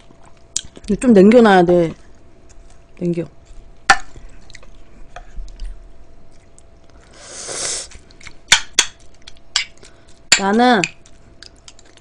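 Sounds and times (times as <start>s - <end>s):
wet mouth eating sounds: 4.2s - 12.0s
wet slurp: 7.0s - 8.0s.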